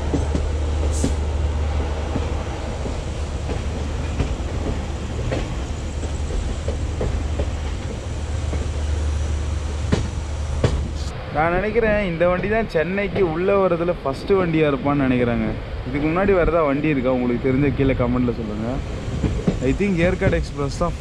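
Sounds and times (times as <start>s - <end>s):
wheels clacking over rail joints: 0.0s - 11.1s, 18.8s - 20.8s
moving train rumble: 0.0s - 21.0s.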